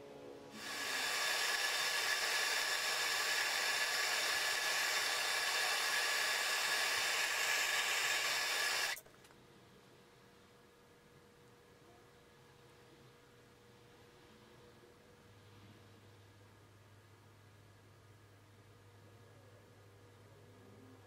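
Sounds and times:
rushing air hiss with whine: 0:00.5 - 0:09.0.

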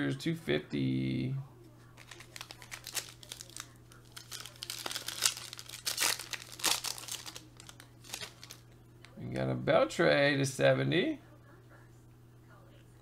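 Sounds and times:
foil wrapper tearing and crinkling: 0:02.0 - 0:08.6.

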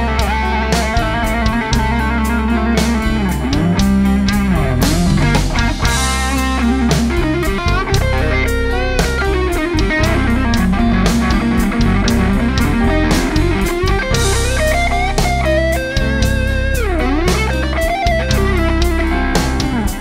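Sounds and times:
backing beat and bass: 0:00.0 - 0:20.0
electric guitar with bent notes: 0:00.0 - 0:20.0.

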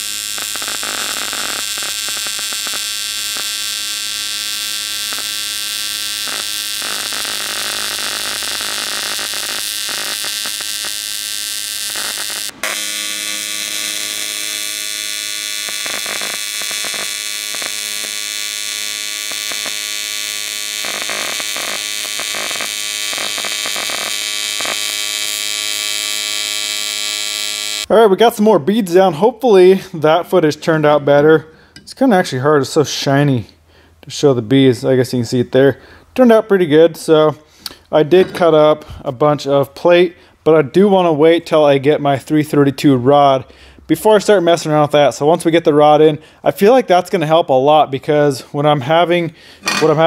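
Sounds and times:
welding arc buzzing and hissing: 0:00.0 - 0:27.9.

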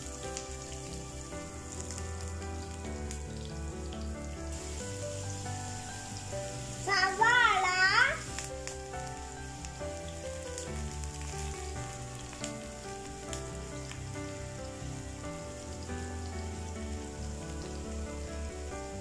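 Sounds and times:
shallots sizzling in oil: 0:00.0 - 0:19.0
soft background music: 0:00.0 - 0:19.0.

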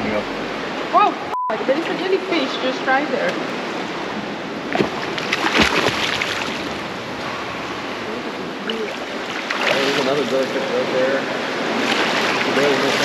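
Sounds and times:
water lapping against boat: 0:00.0 - 0:13.0
splash into water: 0:04.7 - 0:06.8, 0:08.7 - 0:10.4, 0:11.8 - 0:13.0.

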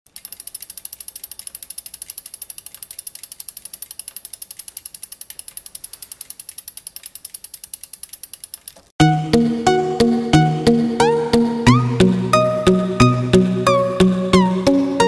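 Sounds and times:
bicycle freehub ratcheting clicks: 0:00.1 - 0:08.9.

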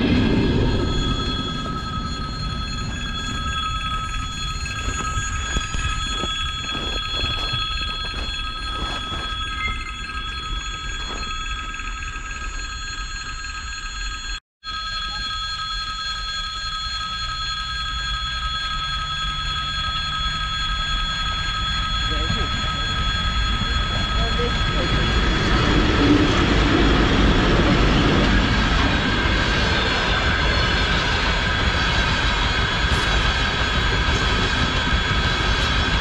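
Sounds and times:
low rumble: 0:00.0 - 0:11.4
high ringing: 0:00.0 - 0:36.0.

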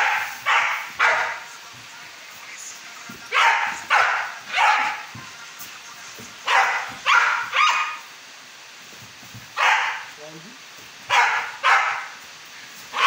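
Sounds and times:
puppy barking: 0:00.0 - 0:01.5, 0:03.3 - 0:05.2, 0:06.4 - 0:08.1, 0:09.5 - 0:10.2, 0:11.1 - 0:12.2.

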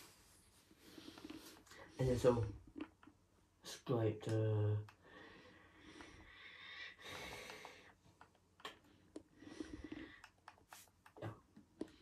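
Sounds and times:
soft breath: 0:05.0 - 0:08.1, 0:08.7 - 0:10.9.

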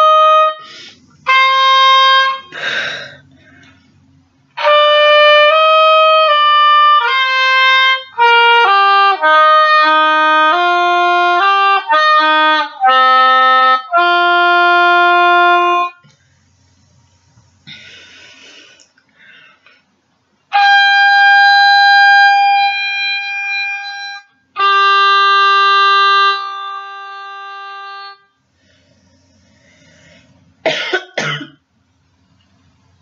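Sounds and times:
oboe playing long notes: 0:00.0 - 0:02.7, 0:04.6 - 0:16.0, 0:20.5 - 0:28.3
person coughing: 0:30.6 - 0:31.6.

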